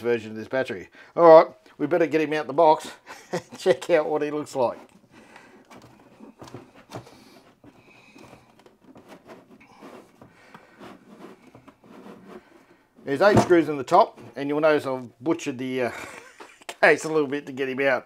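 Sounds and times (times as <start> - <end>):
plastic case scrapes and clicks: 4.6 - 14.4.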